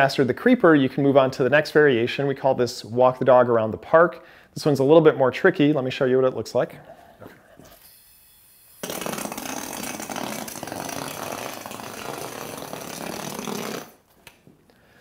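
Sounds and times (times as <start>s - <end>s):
yo-yo whirring on hard floor: 7.6s - 14.0s.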